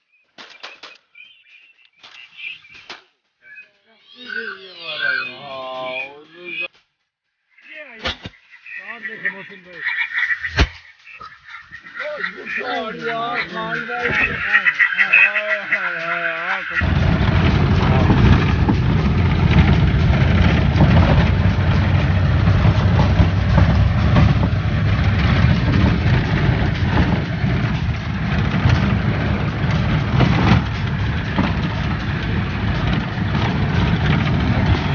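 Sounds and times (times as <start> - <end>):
road and body rattle: 8.3 - 34.9
vehicle engine rumble: 8.7 - 34.9
knocks: 16.8 - 34.9.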